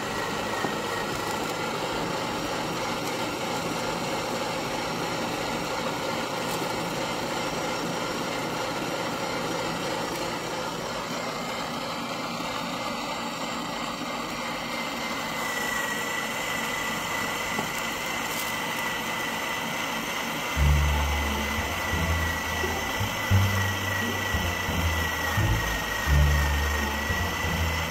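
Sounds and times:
meat grinder motor running: 0:00.0 - 0:27.9
thin high whine: 0:20.6 - 0:27.9.

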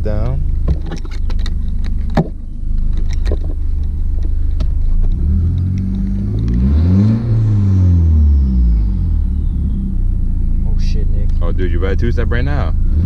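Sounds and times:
car engine idling and revving: 0:00.0 - 0:13.0
sharp clicks: 0:00.2 - 0:06.7.

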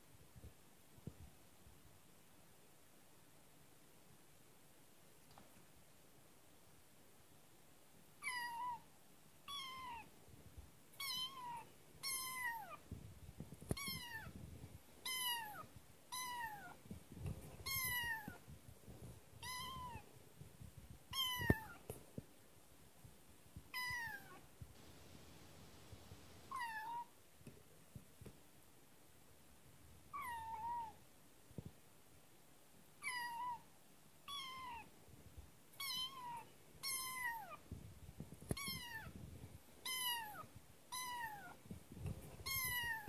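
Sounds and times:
kitten meowing: 0:08.2 - 0:08.8, 0:09.5 - 0:10.1, 0:11.0 - 0:12.8, 0:13.7 - 0:14.4, 0:15.0 - 0:16.8, 0:17.6 - 0:18.4, 0:19.4 - 0:20.0, 0:21.1 - 0:21.8, 0:23.7 - 0:24.4, 0:26.5 - 0:27.1, 0:30.1 - 0:31.0, 0:33.0 - 0:33.6, 0:34.3 - 0:34.9, 0:35.8 - 0:37.6, 0:38.5 - 0:39.2, 0:39.8 - 0:41.6, 0:42.4 - 0:43.0.

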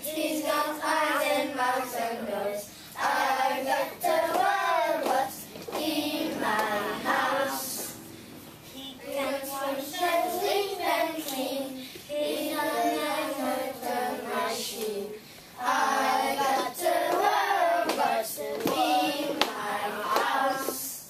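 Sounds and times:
young children singing: 0:00.0 - 0:08.1, 0:08.7 - 0:21.0
hand claps: 0:04.3 - 0:05.9, 0:16.5 - 0:20.9.

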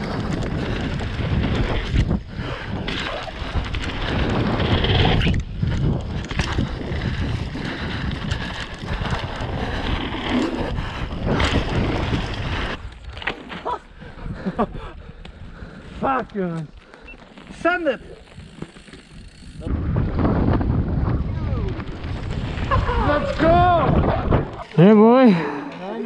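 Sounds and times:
wind rushing over microphone: 0:00.0 - 0:13.2, 0:18.2 - 0:24.8
bike rattling and knocking: 0:00.0 - 0:13.6, 0:18.2 - 0:25.2.

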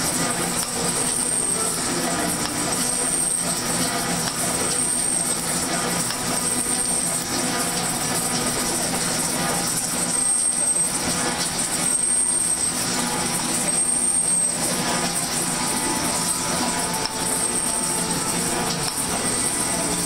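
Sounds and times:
motor hum: 0:00.0 - 0:20.0
metal shaper cutting: 0:10.4 - 0:20.0
high thin whine: 0:11.9 - 0:20.0.

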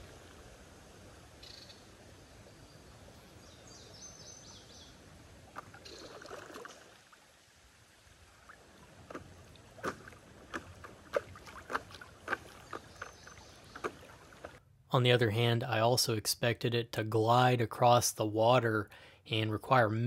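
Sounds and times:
water splashes and drips: 0:05.3 - 0:14.6
paddle swishing water: 0:05.4 - 0:07.4, 0:08.2 - 0:14.6.

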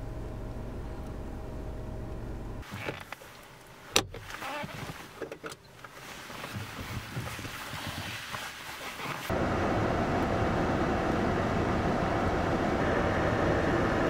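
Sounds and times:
clothing and bags rustling: 0:02.6 - 0:09.3
steady hum: 0:09.3 - 0:14.0.

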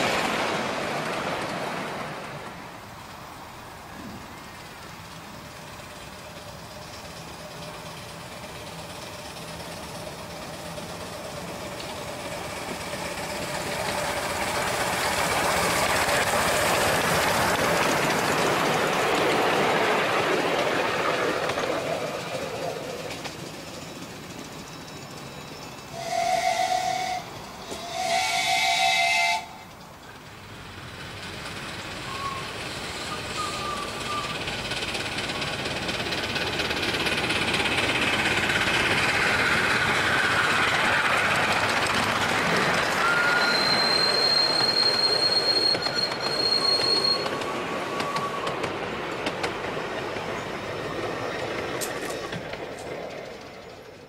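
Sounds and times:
wheels clicking over rail joints: 0:00.0 - 0:28.2, 0:29.6 - 0:54.0
steam hissing: 0:02.6 - 0:52.4
steam locomotive whistle: 0:25.9 - 0:29.7, 0:32.1 - 0:34.4, 0:43.0 - 0:48.7
high steady squeal: 0:32.0 - 0:48.8.

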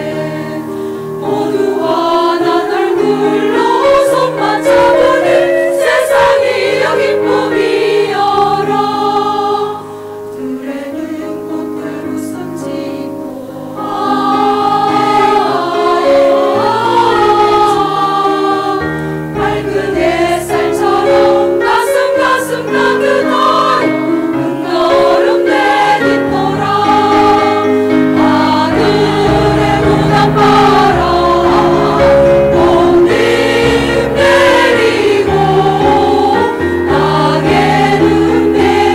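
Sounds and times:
women's choir singing: 0:00.0 - 0:38.9
sustained low accompaniment: 0:26.1 - 0:38.9.

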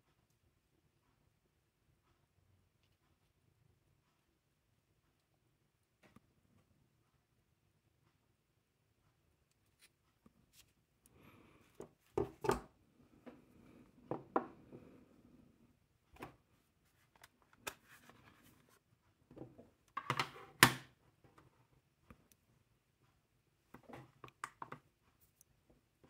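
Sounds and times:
objects knocking on wooden table: 0:14.1 - 0:14.6.

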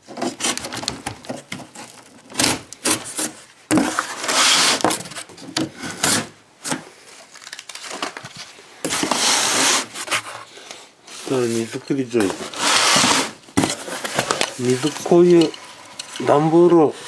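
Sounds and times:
scissors cutting cardboard: 0:00.0 - 0:05.0, 0:12.2 - 0:15.6
cardboard being handled: 0:11.1 - 0:17.0.

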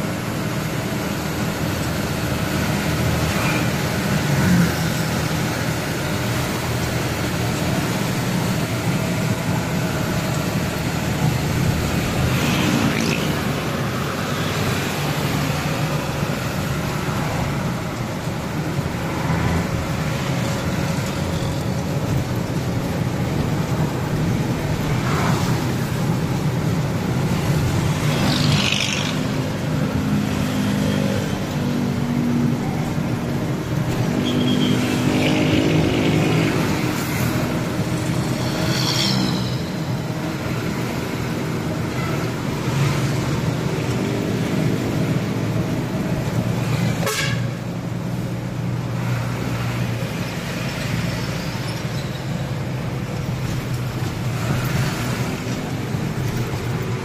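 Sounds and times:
truck engine running: 0:00.0 - 0:28.2
road noise inside cab: 0:00.0 - 0:57.0.

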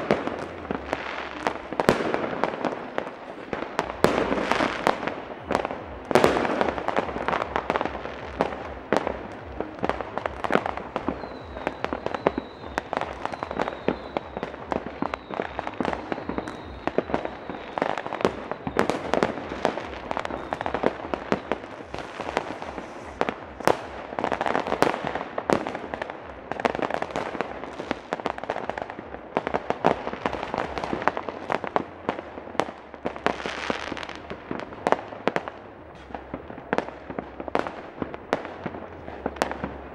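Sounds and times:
fireworks and firecrackers exploding: 0:00.0 - 0:39.9
thin high whistle: 0:11.1 - 0:19.1.

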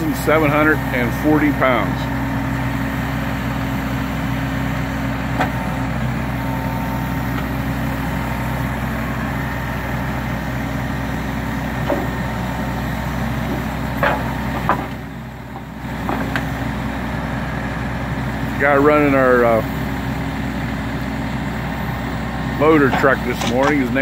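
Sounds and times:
truck diesel engine running: 0:00.0 - 0:24.0
grapple clanking on steel rails: 0:22.8 - 0:24.0.

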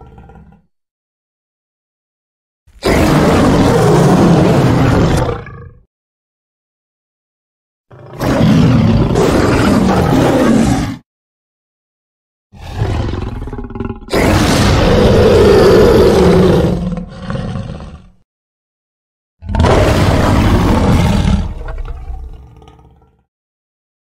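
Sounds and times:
big cat roaring: 0:00.0 - 0:00.7, 0:02.8 - 0:05.9, 0:07.9 - 0:11.0, 0:12.6 - 0:18.2, 0:19.4 - 0:23.3.

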